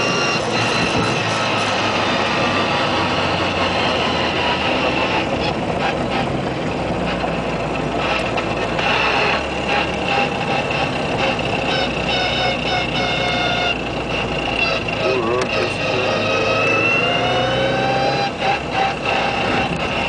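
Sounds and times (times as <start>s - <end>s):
car engine under load: 0.0s - 20.0s
high gear whine: 0.0s - 20.0s.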